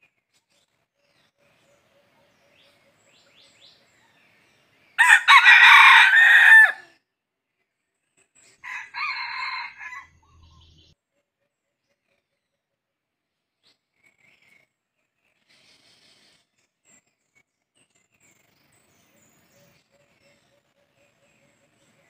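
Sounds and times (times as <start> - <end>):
rooster crowing: 5.0 - 6.9, 8.6 - 10.2.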